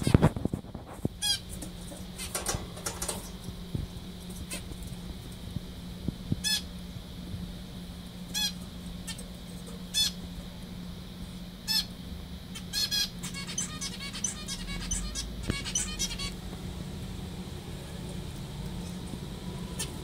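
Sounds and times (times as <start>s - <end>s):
steady low hum: 0.0s - 20.0s
finch nasal calls: 9.9s - 10.2s, 11.6s - 11.9s, 12.5s - 16.4s.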